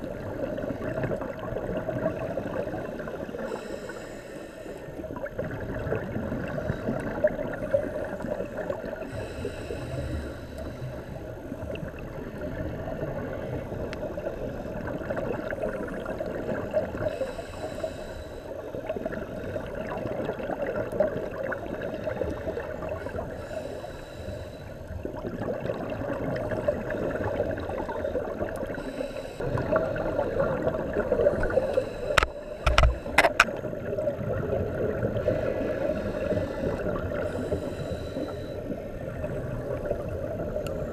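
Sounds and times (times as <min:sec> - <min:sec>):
exhaled air bubbles gurgling: 0:00.0 - 0:04.0, 0:05.0 - 0:40.9
diver breathing through regulator: 0:02.7 - 0:05.1, 0:06.4 - 0:11.6, 0:16.9 - 0:20.0, 0:21.8 - 0:25.1, 0:26.4 - 0:33.6, 0:35.0 - 0:39.9
sharp clicks: 0:32.1 - 0:33.5.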